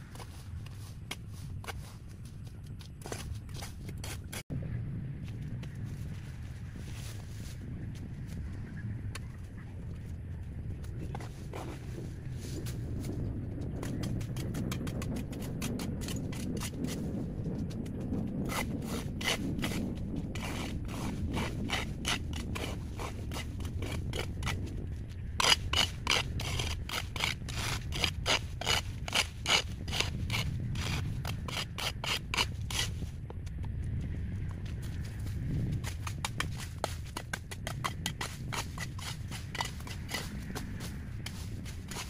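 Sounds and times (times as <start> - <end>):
steady low rumble: 0.0 - 42.0
hand tool scraping: 20.4 - 24.6, 25.4 - 33.1, 35.8 - 42.0.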